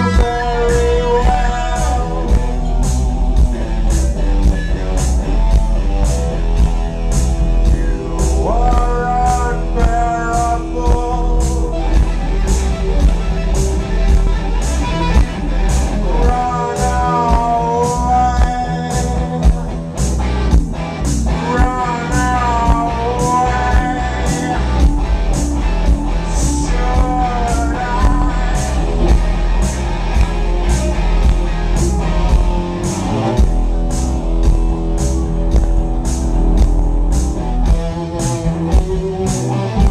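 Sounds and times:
man singing: 0.0 - 3.0, 7.6 - 12.7, 15.8 - 19.9, 21.3 - 29.8
live rock band playing: 0.0 - 39.9.

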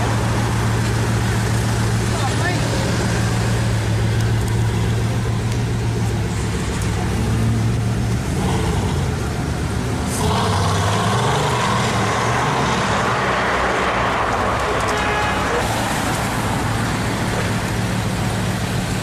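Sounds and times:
car engine droning: 0.0 - 19.0.

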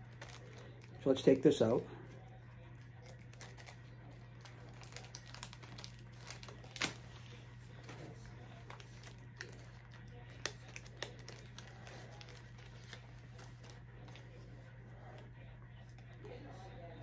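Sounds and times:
packaging rustling: 0.0 - 1.0, 4.4 - 14.3
steady low hum: 0.0 - 17.0.

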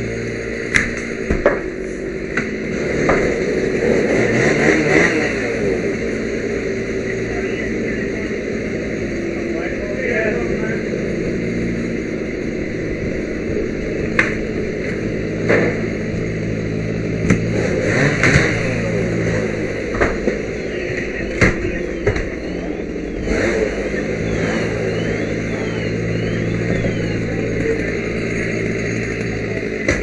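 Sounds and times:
engine drone: 0.0 - 30.0
sharp knocks and clatter: 19.9 - 20.4.

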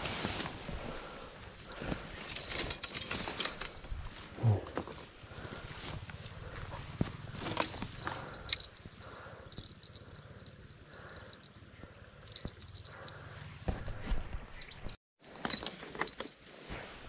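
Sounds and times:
rustling of leafy plants: 0.0 - 13.2
insects chirring: 0.9 - 15.0.

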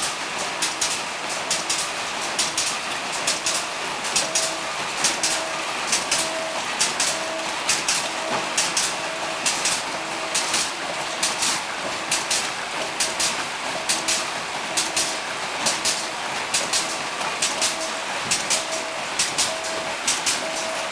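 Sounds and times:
packing machine running: 0.0 - 20.9
sharp hissy clicks: 0.6 - 20.7
short humming tone: 4.2 - 11.2, 17.6 - 20.9.

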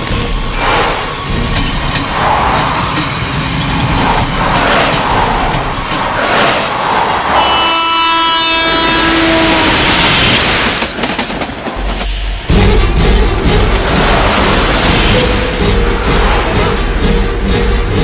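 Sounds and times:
train rushing rumble: 0.0 - 18.0
train horn blast: 7.3 - 10.4.

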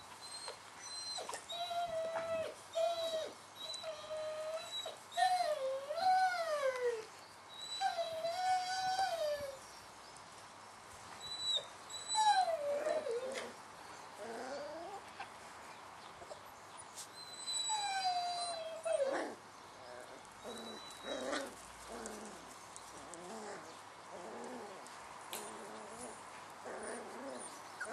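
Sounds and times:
puppies whining and yelping: 0.2 - 9.6, 11.2 - 13.6, 14.2 - 15.1, 16.2 - 24.7, 25.4 - 27.9.

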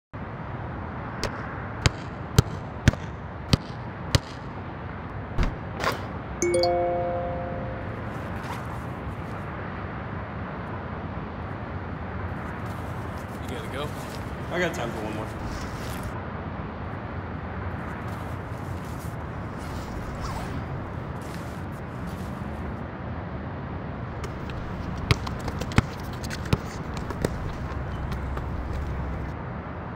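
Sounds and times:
ball swishing through net: 8.0 - 9.2, 18.1 - 22.5
basketball bouncing: 24.2 - 29.3.

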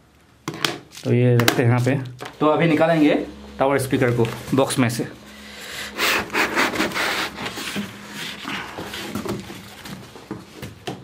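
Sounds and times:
cardboard box rustling and scraping: 6.2 - 10.6.

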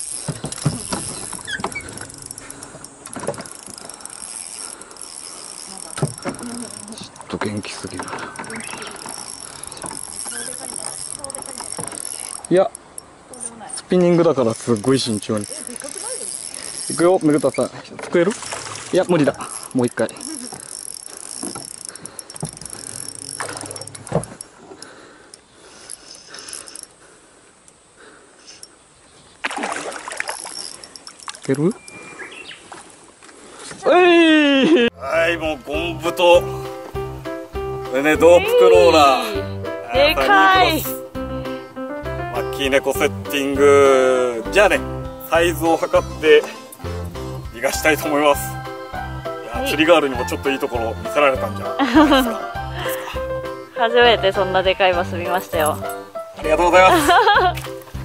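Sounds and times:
short high squeaks: 0.0 - 12.5, 14.6 - 17.8, 19.4 - 24.6
fishing reel clicking: 0.0 - 13.1, 14.5 - 17.8, 19.2 - 27.0, 30.3 - 31.5.

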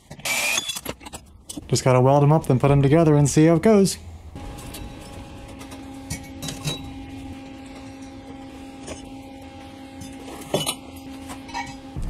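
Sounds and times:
steady low hum: 4.0 - 12.0.

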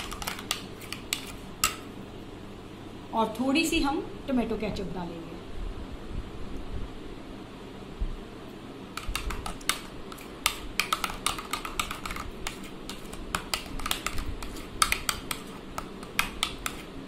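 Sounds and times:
metal spoon stirring in plastic bowl: 0.0 - 1.9, 9.0 - 17.0.

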